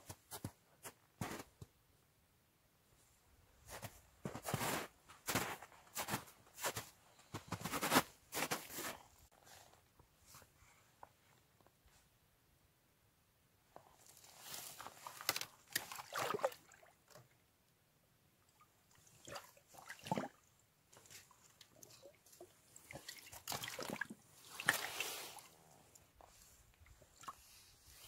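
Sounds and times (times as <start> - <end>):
water sloshing and gurgling: 14.7 - 17.3, 18.9 - 25.6.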